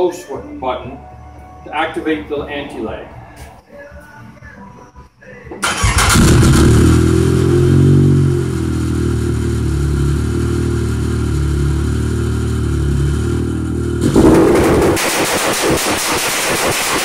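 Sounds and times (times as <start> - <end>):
engine revving with crackle: 5.6 - 11.3, 12.0 - 17.0.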